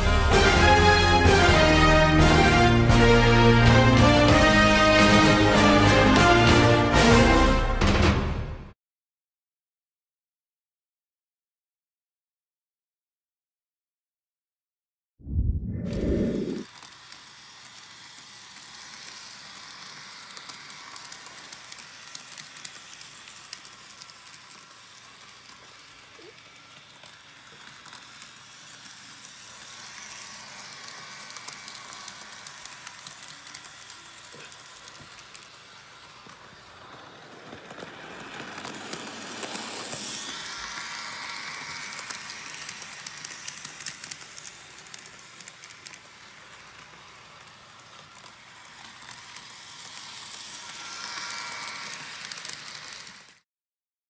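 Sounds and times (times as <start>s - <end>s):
model train rattling on track: 16.7s - 53.4s.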